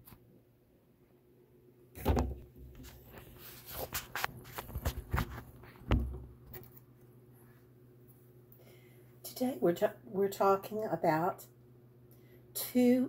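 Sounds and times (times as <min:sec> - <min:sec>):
knocks and rustles: 0:02.0 - 0:06.8.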